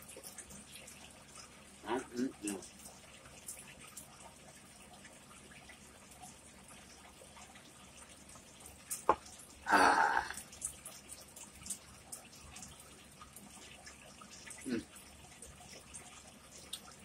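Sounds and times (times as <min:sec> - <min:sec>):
man exhaling ahh: 0:09.7 - 0:10.4
wet mouth clicks: 0:16.6 - 0:16.9.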